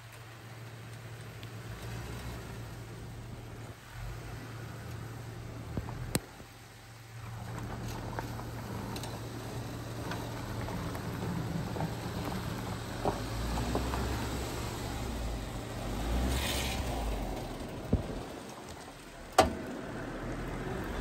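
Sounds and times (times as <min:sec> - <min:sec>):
engine low hum: 0:00.0 - 0:21.0
tyres crunching over dirt: 0:07.1 - 0:21.0.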